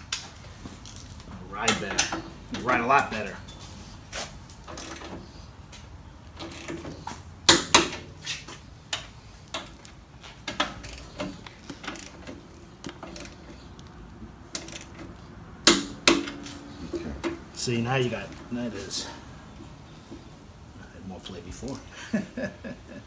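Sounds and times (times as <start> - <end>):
clanking of hand tools and metal: 0.8 - 3.7, 6.4 - 13.7, 14.5 - 19.2.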